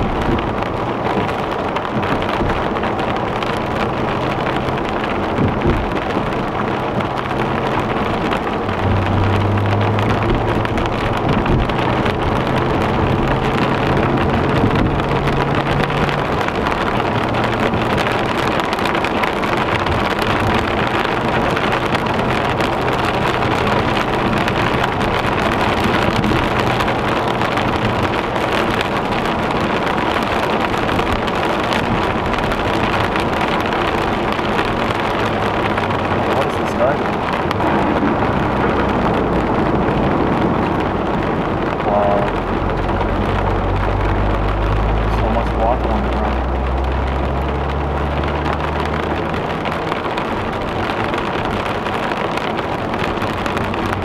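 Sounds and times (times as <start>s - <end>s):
heavy rain drumming on a car: 0.0s - 54.0s
low engine hum: 0.0s - 54.0s
tyres hissing on a flooded road: 28.3s - 53.8s.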